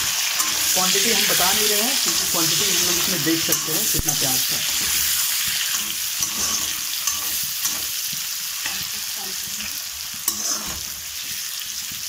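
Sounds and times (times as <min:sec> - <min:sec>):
metal spatula stirring: 0:00.0 - 0:12.0
onions sizzling in hot oil: 0:00.0 - 0:12.0
spatula clacking on pan: 0:01.4 - 0:08.9.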